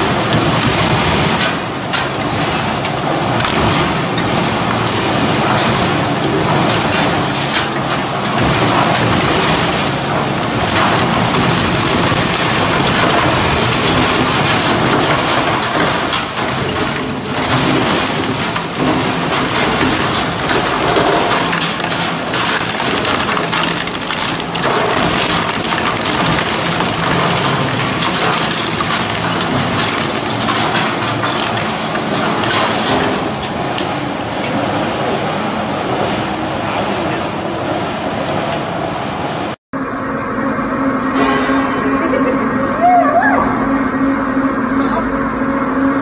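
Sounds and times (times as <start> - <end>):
shredder grinding metal and plastic: 0.0 - 36.4.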